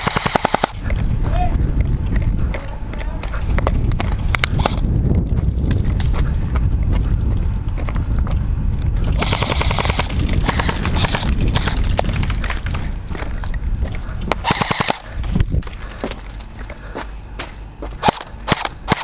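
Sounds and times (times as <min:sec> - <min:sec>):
airsoft guns firing bursts: 0:00.0 - 0:00.8, 0:09.2 - 0:11.8, 0:14.4 - 0:15.2, 0:18.0 - 0:19.0
low rumble: 0:00.0 - 0:19.0.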